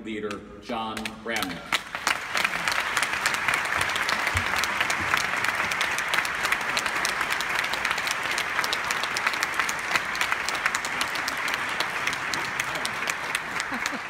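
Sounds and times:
audience applauding: 1.0s - 14.0s.

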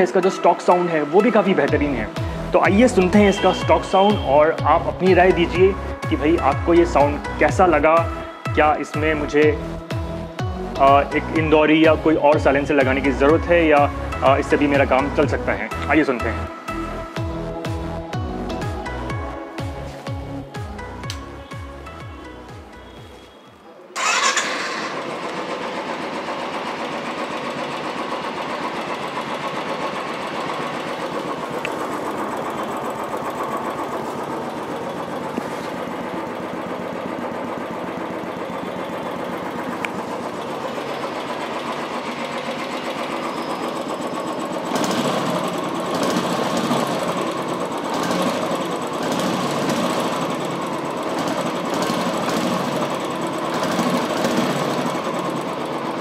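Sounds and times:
motorcycle engine idling: 0.0s - 18.0s, 20.4s - 56.0s.

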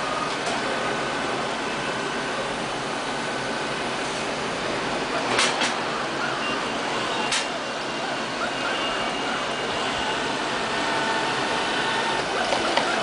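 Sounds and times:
robot vacuum cleaner whirring: 8.1s - 13.0s.

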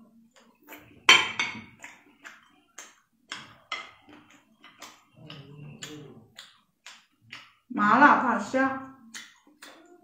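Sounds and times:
wet chewing mouth clicks: 0.1s - 1.0s, 1.8s - 7.7s, 8.8s - 10.0s.

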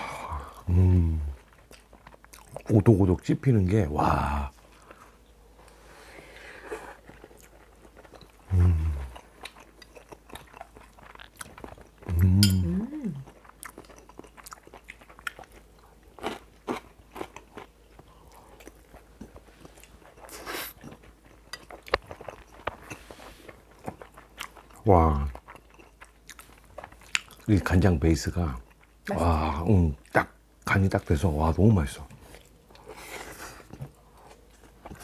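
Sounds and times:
low hums of enjoyment: 0.0s - 1.6s, 2.7s - 9.4s, 12.0s - 13.4s
crunchy chewing: 1.3s - 2.7s, 4.6s - 12.4s, 13.2s - 27.8s.

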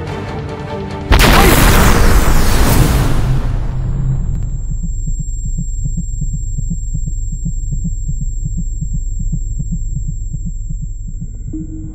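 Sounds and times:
explosion tail: 1.1s - 4.8s
low hum: 3.0s - 11.9s
low throbbing pulse: 3.3s - 11.9s
high ringing tone: 4.5s - 11.9s.

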